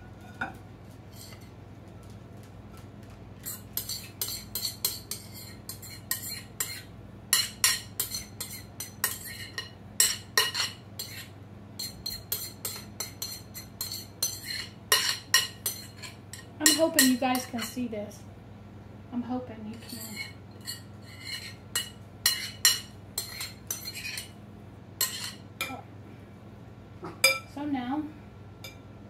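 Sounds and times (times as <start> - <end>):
steady low hum: 0.0 - 29.0
spoon scraping ceramic bowl: 1.1 - 1.5, 3.4 - 17.8, 19.7 - 24.4, 25.0 - 25.4.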